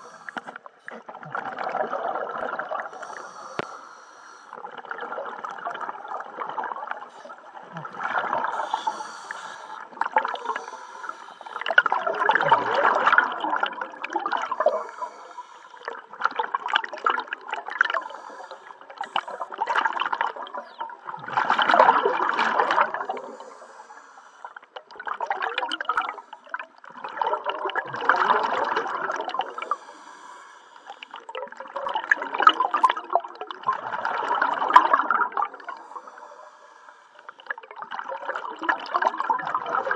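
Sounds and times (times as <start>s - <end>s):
diver inhaling through regulator: 0.0s - 1.0s, 2.8s - 4.6s, 8.4s - 11.8s, 14.5s - 16.0s, 17.9s - 19.7s, 23.1s - 24.6s, 29.4s - 31.3s, 35.5s - 37.5s
exhaled bubbles gurgling underwater: 0.0s - 39.9s.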